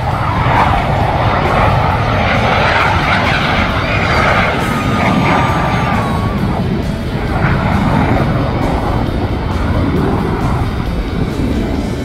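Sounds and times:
jet roar overhead: 0.0s - 12.0s
wavering whine: 0.0s - 12.0s.

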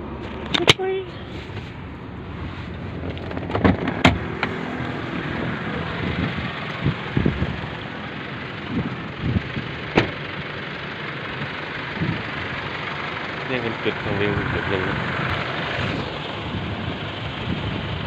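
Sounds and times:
traffic noise: 0.0s - 18.0s
wind: 0.0s - 18.0s
car door clicks and knocks: 3.1s - 4.6s, 9.9s - 10.2s.

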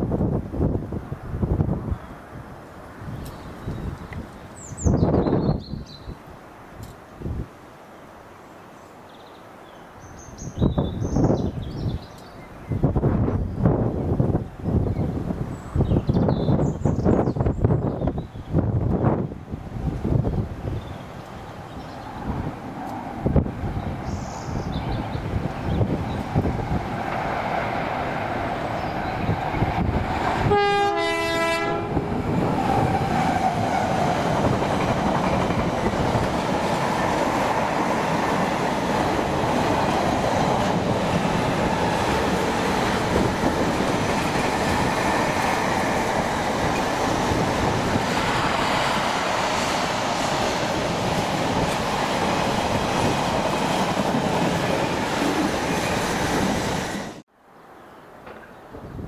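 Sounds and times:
two-tone train horn: 30.4s - 32.2s
wheels clattering on rails: 32.6s - 48.2s.

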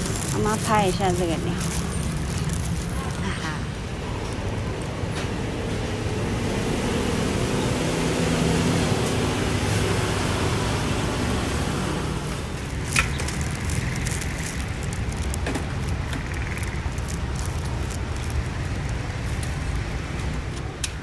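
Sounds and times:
traffic rumble: 0.0s - 21.0s
sharp clicks and ticks: 12.6s - 21.0s.

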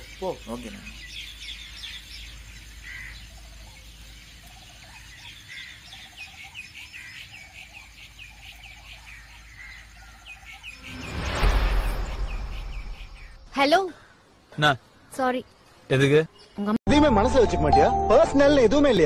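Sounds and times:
birds chirping: 0.0s - 16.8s.

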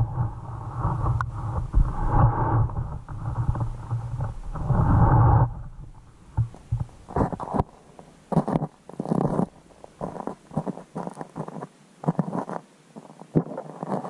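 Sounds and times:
muffled underwater rumbling: 0.0s - 7.8s.

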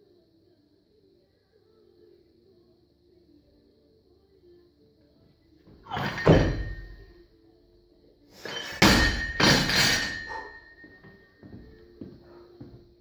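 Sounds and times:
barbell dropped on floor: 5.9s - 7.1s, 8.5s - 10.6s
ringing of bar and plates: 5.9s - 7.2s, 8.4s - 11.7s
barbell clatter on catch: 8.5s - 10.5s.

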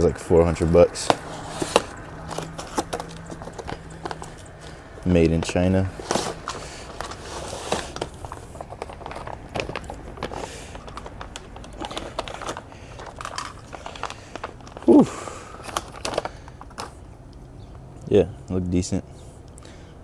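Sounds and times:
packaging crinkling and rustling: 1.0s - 17.0s
person humming: 14.8s - 15.3s.

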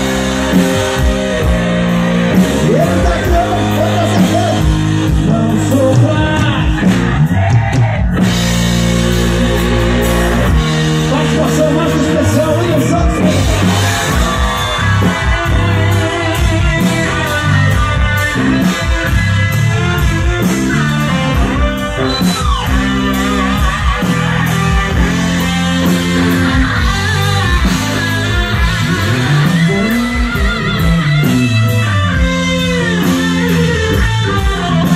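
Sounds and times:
gospel rock band playing: 0.0s - 34.9s
man singing: 2.5s - 8.2s, 9.1s - 14.8s.

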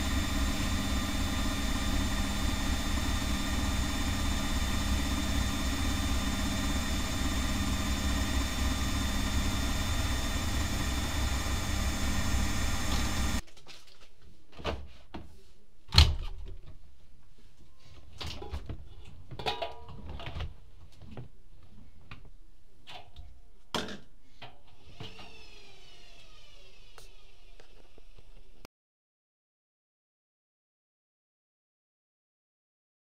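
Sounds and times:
washing machine running: 0.0s - 13.4s, 24.8s - 28.6s.

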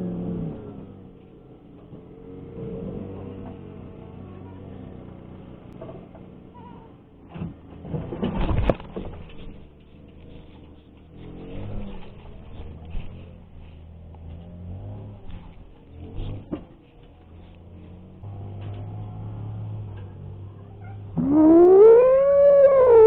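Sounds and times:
cats growling and yowling: 20.8s - 23.0s.

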